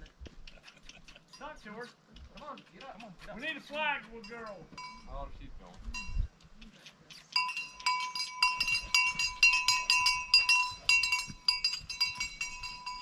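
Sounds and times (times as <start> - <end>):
cowbell clanking: 1.3 - 1.8, 4.1 - 5.3, 5.9 - 6.3, 7.4 - 13.0.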